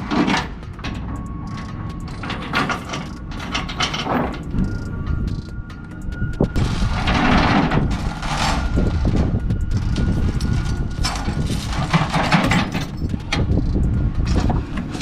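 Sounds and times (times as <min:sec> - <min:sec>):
chain rattling over steel plates: 0:00.0 - 0:15.0
low rumble: 0:00.0 - 0:15.0.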